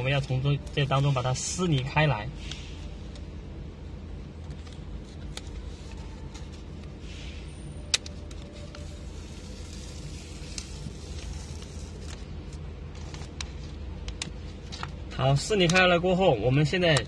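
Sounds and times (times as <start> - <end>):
steady low hum: 0.0 - 17.0
paper rustling and crinkling: 8.2 - 15.0
paper tearing: 8.8 - 12.3.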